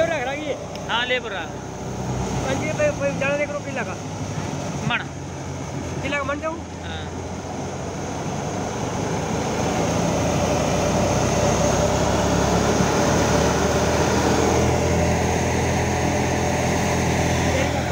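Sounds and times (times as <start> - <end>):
diesel engine humming: 0.0 - 17.9
thresher drum and blower churning: 4.6 - 17.9.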